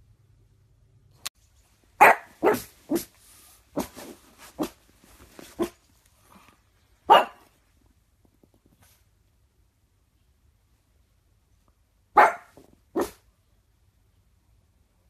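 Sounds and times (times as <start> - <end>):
dog barking: 2.0 - 3.1, 7.1 - 7.5, 12.1 - 13.3.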